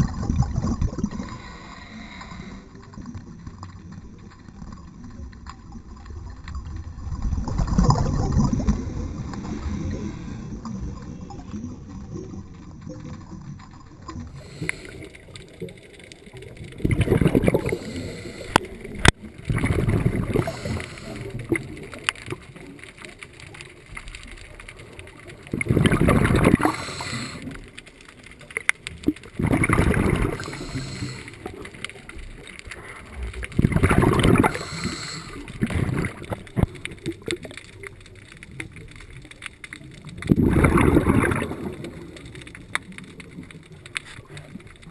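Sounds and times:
exhaled breath bubbling underwater: 0.0s - 3.0s, 7.3s - 12.4s, 14.2s - 22.6s, 25.1s - 27.8s, 29.0s - 37.4s, 40.1s - 42.6s
low steady underwater wash: 0.0s - 44.9s
sharp clicks: 14.2s - 19.7s.

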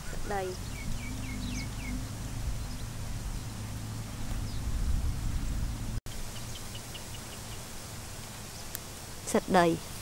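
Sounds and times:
faint bird chirp: 0.0s - 3.5s
low outdoor rumble: 0.0s - 6.4s.

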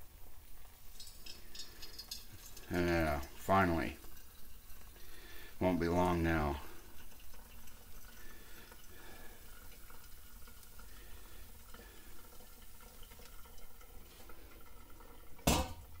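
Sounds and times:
water trickling onto coffee: 0.0s - 16.0s
kettle clunk in sink: 15.4s - 16.0s.

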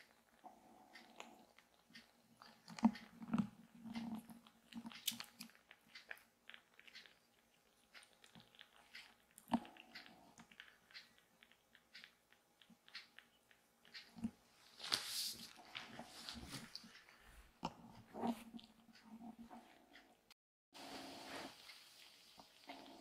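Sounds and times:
kittens suckling wet clicks: 0.0s - 14.4s.

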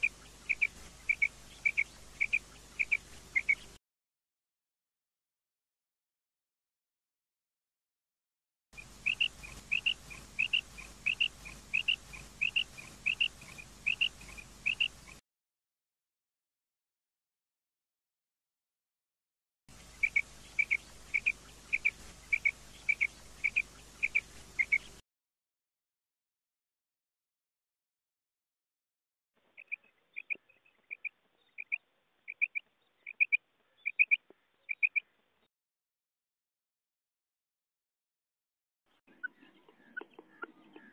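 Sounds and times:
quail calling: 0.0s - 3.8s, 8.8s - 15.2s, 19.9s - 25.0s, 29.6s - 35.1s, 39.1s - 40.9s.

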